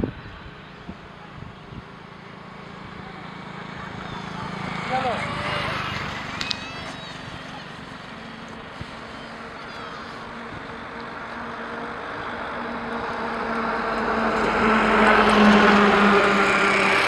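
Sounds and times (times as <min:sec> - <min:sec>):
vehicle engine humming: 0:00.0 - 0:17.0.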